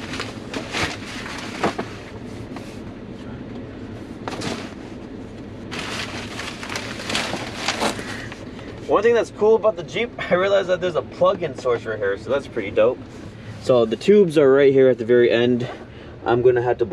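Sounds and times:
rustling and handling noises: 0:00.0 - 0:09.0.

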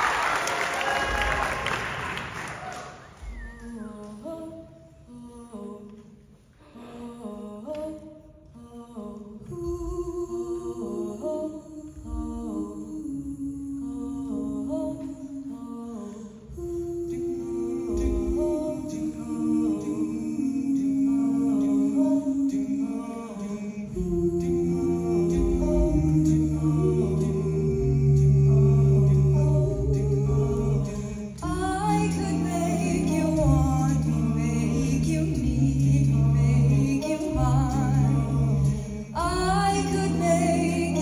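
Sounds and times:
choir humming chords: 0:06.6 - 0:41.0.

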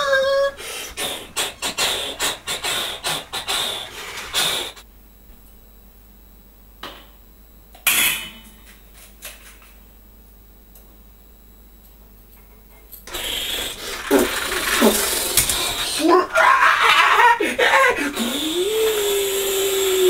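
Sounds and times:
scraping and rubbing: 0:13.1 - 0:16.1.

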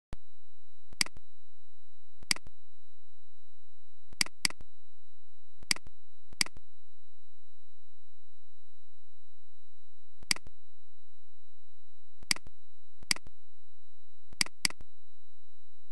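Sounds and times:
mouse button clicks: 0:14.4 - 0:14.8.

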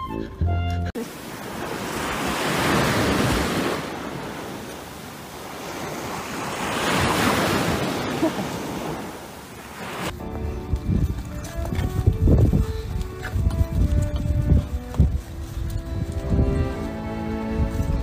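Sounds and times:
background music: 0:00.0 - 0:01.0, 0:10.1 - 0:18.0
wind rumbling on microphone: 0:01.2 - 0:18.0.

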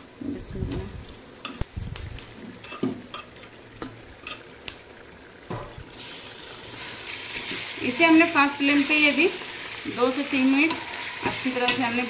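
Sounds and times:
frying sizzle: 0:01.0 - 0:12.0
wooden spatula stirring food: 0:08.6 - 0:12.0.

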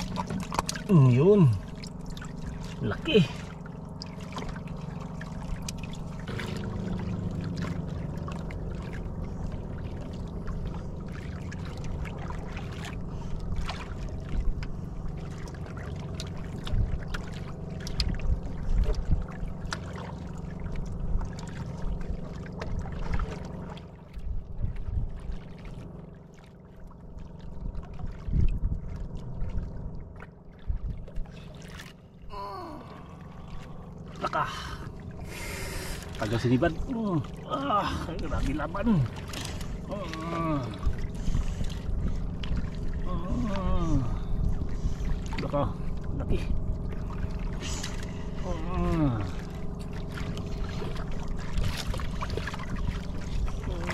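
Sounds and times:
boat motor running: 0:00.0 - 0:53.9
water splashing against hull: 0:00.0 - 0:53.9.

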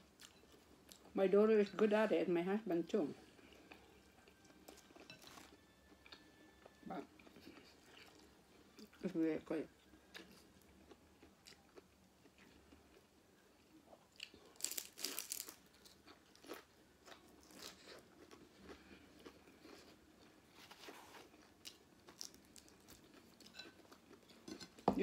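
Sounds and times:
crunching crispy food: 0:14.2 - 0:20.0, 0:20.8 - 0:23.6.

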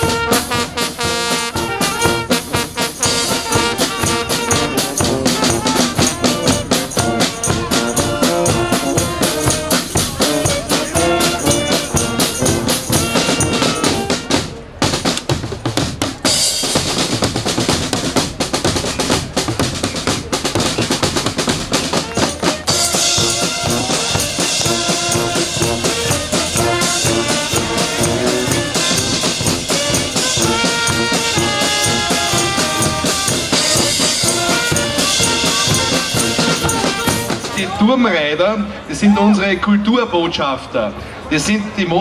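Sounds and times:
drum beat with cymbals: 0:00.0 - 0:37.8
brass band playing: 0:00.0 - 0:38.1.

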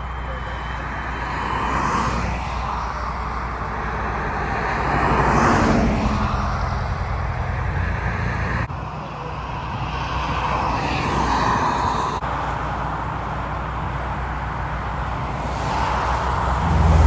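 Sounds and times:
highway traffic passing: 0:00.0 - 0:17.0
car passing close: 0:15.0 - 0:17.0.

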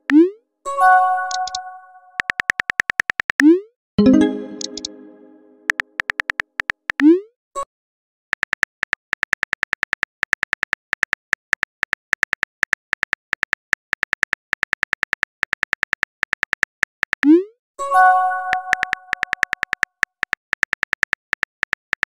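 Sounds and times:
phone keyboard typing clicks: 0:01.3 - 0:01.6, 0:02.2 - 0:05.0, 0:05.6 - 0:07.1, 0:08.4 - 0:17.3, 0:18.5 - 0:22.0.

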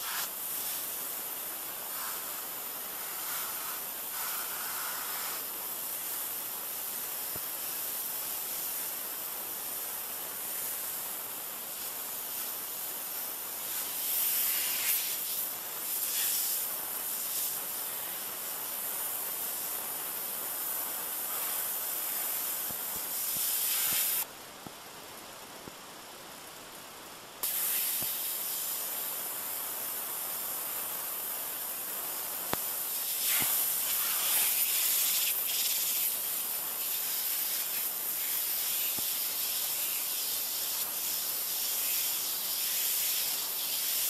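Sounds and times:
pressure washer spray hiss: 0:00.0 - 0:24.3, 0:27.4 - 0:44.0.

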